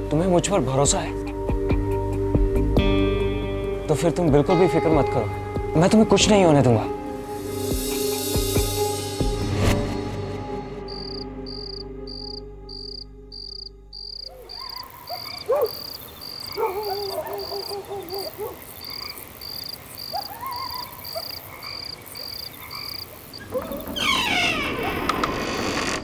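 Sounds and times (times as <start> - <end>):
music tones: 2.9 - 15.0
cricket chirping: 10.8 - 25.3
frogs croaking: 10.9 - 25.2.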